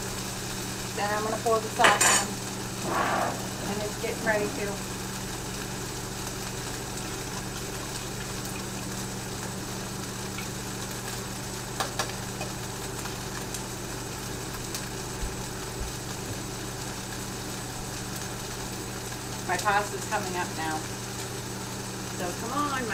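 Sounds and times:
microwave oven humming: 0.0s - 22.9s.

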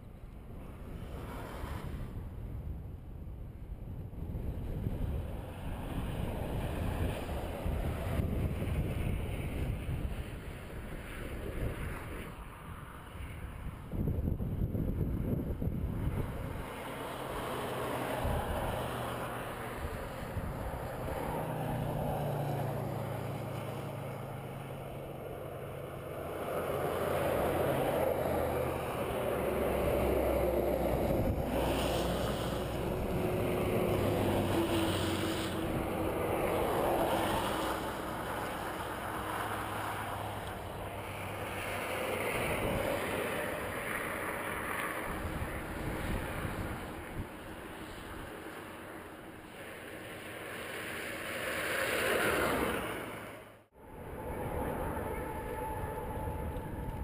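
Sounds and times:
vehicles passing on highway: 0.0s - 57.0s
truck engine drone: 15.9s - 57.0s.

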